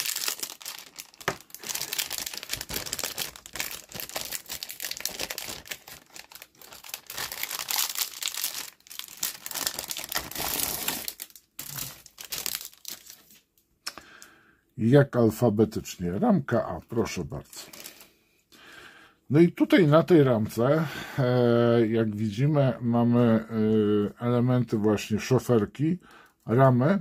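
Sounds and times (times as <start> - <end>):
plastic bag crinkling: 0.0 - 13.5, 17.5 - 18.1.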